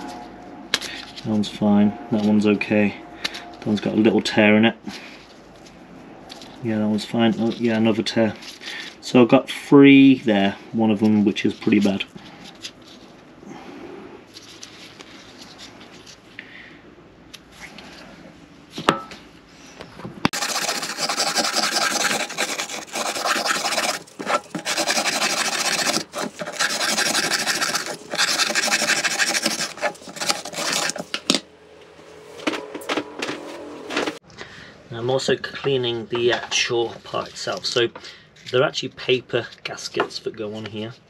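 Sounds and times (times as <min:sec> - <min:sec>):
wire brush scrubbing metal: 0:20.3 - 0:31.4.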